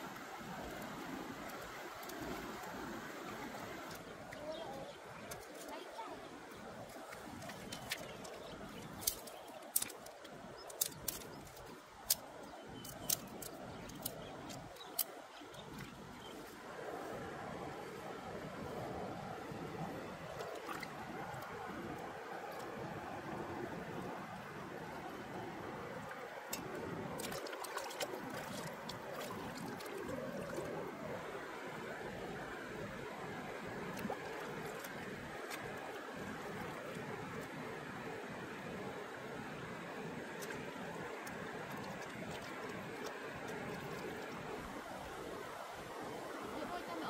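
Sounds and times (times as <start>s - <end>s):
stream water trickling: 0.0s - 47.0s
dry twigs snapping: 9.0s - 12.2s.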